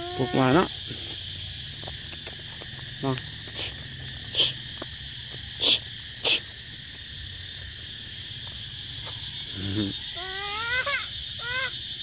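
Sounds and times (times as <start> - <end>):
insect chirring: 0.0 - 12.0.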